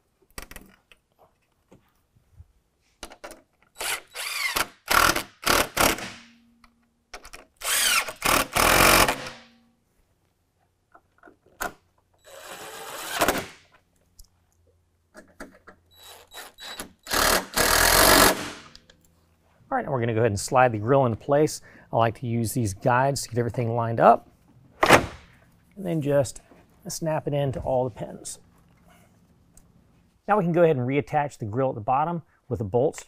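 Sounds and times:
cordless drill driving bolts: 3.7s - 6.2s, 7.6s - 9.5s, 12.2s - 13.6s, 15.9s - 18.8s.

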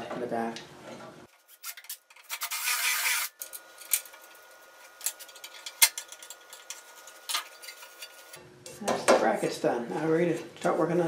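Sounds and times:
drill grinding through metal: 2.3s - 3.6s.

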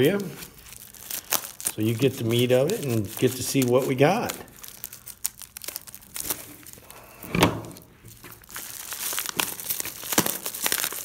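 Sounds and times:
scissors cutting plastic: 0.0s - 6.7s
loud plastic crunch: 0.0s - 11.0s
plastic packaging crinkling: 0.0s - 11.0s.

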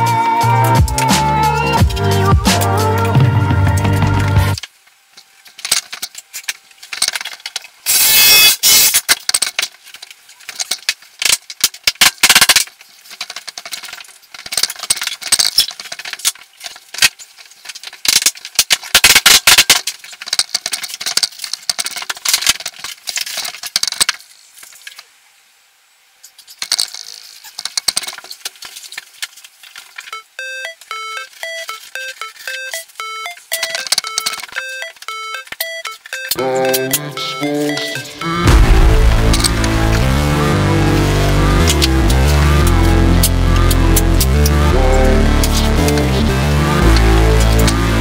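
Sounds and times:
laminate planks clicking and rattling: 9.0s - 25.0s, 26.4s - 30.0s.

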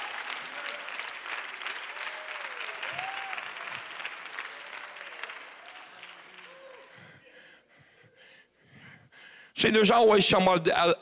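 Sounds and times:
congregation applauding: 0.0s - 7.5s.

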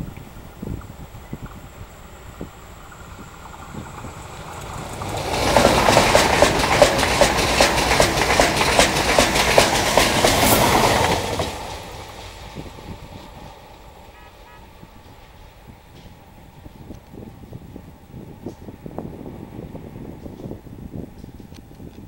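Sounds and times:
train passing at speed: 0.0s - 21.8s
rhythmic wheel clatter: 1.5s - 13.5s.

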